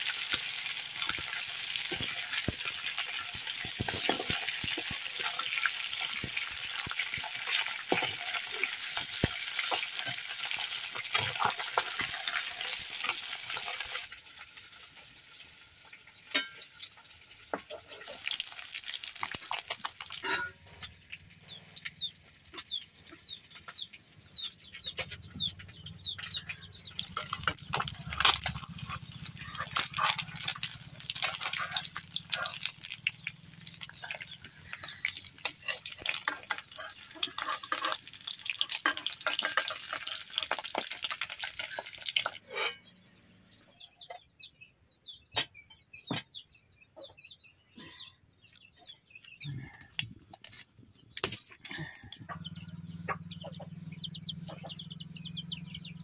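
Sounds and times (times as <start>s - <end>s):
fish sizzling in hot oil: 0.0s - 20.6s, 26.9s - 42.4s.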